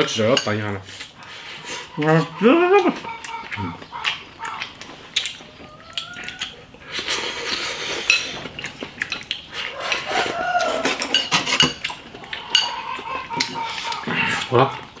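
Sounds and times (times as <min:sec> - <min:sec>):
chopsticks clicking against bowls: 0:07.4 - 0:15.0.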